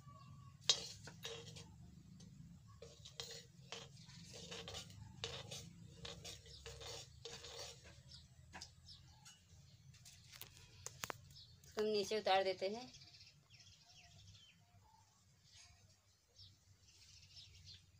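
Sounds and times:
steel spoon scraping a pan: 0.0s - 8.4s.

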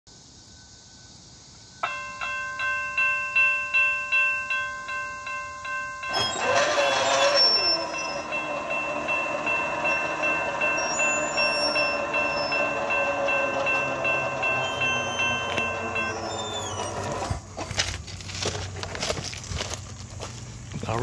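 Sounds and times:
railroad crossing bell ringing: 1.8s - 17.4s.

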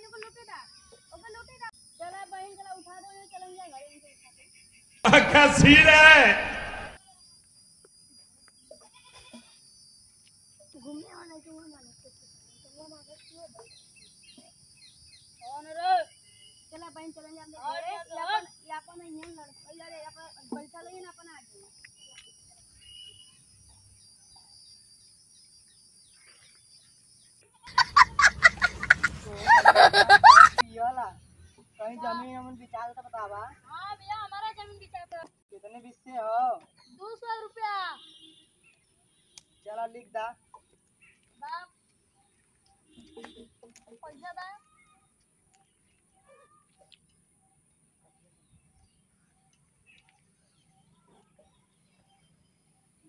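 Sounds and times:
faint bird chirps: 7.0s - 28.9s, 36.6s - 53.0s.

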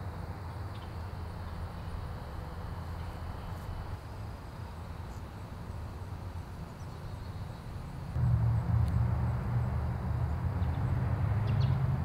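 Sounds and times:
faint high insect trill: 0.0s - 11.8s
low rumble: 8.2s - 11.0s.

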